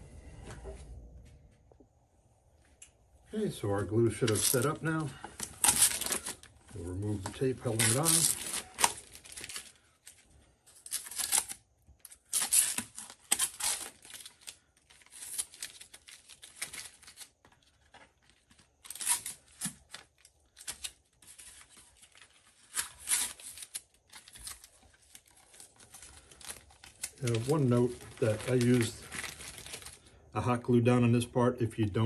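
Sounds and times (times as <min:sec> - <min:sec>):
masking tape ripping off: 0:05.4 - 0:06.4, 0:07.4 - 0:09.7, 0:10.8 - 0:17.3, 0:18.8 - 0:21.0, 0:22.5 - 0:24.7.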